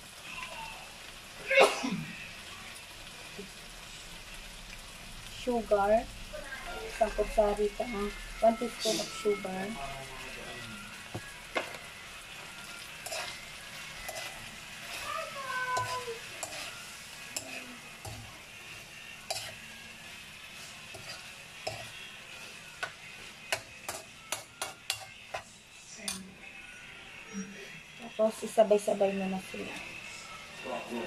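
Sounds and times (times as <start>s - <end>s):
meat and onions sizzling in wok: 0.0s - 31.0s
metal spoon scraping wok: 12.6s - 25.5s.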